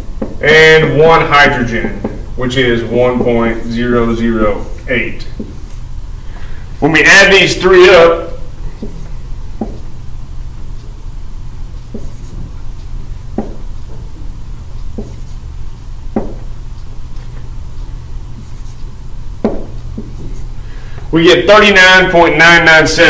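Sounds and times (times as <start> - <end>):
steady low hum: 0.0 - 23.0
marker writing on whiteboard: 0.2 - 5.8, 8.3 - 11.0, 11.6 - 20.6.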